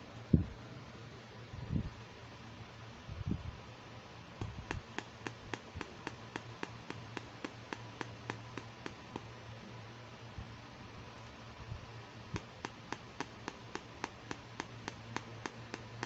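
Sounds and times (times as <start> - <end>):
fingers tapping plastic package: 4.4 - 9.4, 12.4 - 16.0.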